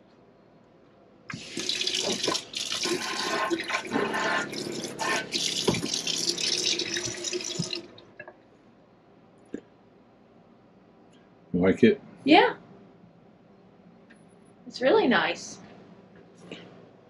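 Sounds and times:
faucet water running into sink: 1.3s - 7.9s.

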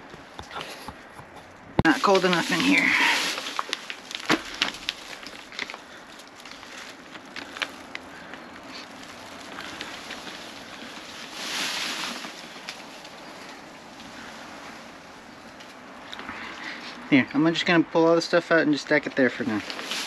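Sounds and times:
plastic crinkling and rustling: 1.8s - 16.9s, 19.1s - 20.0s.

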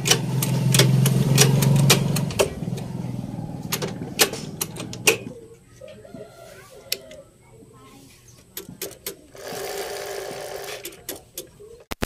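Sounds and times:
low steady hum: 0.0s - 6.2s
shift lever linkage clicking: 3.7s - 5.4s.

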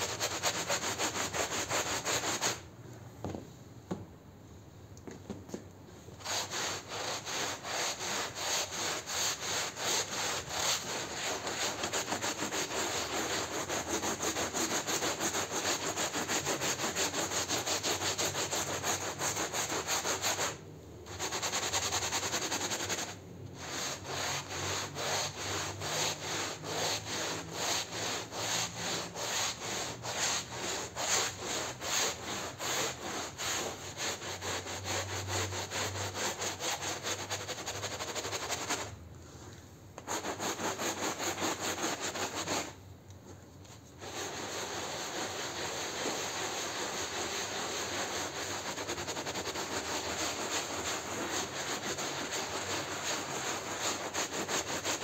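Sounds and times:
brush scrubbing wet rug: 6.2s - 20.4s, 21.2s - 38.8s, 44.0s - 55.0s.

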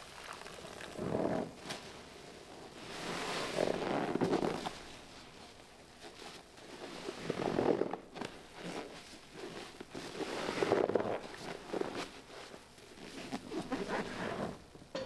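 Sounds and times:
wet sponge squelching: 0.0s - 1.9s.

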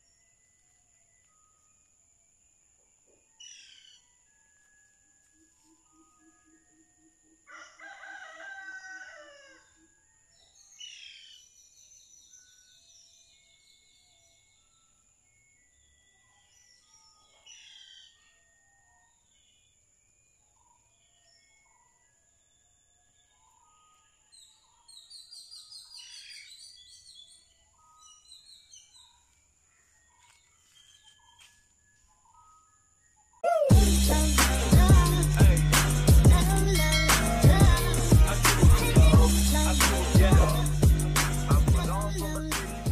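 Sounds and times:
faint steady high tone: 0.0s - 2.4s
rooster crowing: 7.5s - 9.8s
birds chirping: 22.6s - 42.9s
high-pitched background hum: 33.5s - 42.9s.

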